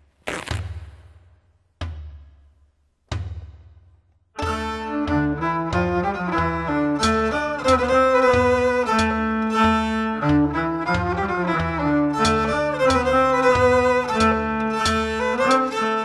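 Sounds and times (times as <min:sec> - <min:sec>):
violin folk dance tune: 0:04.4 - 0:16.0.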